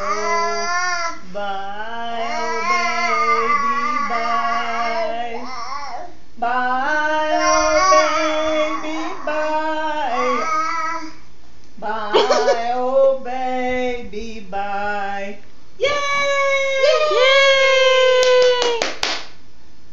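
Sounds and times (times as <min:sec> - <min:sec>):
baby and woman singing: 0:00.0 - 0:11.2.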